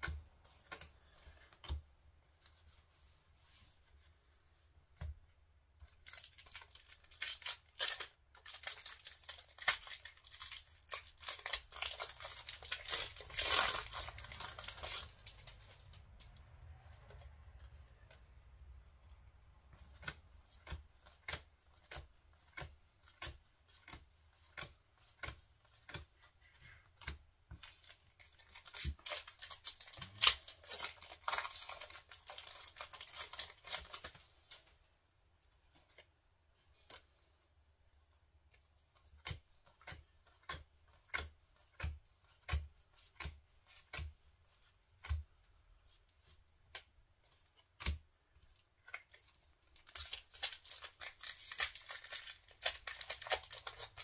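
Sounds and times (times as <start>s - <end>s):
foil wrapper tearing and crinkling: 6.0s - 16.3s, 27.8s - 34.2s, 49.7s - 54.0s.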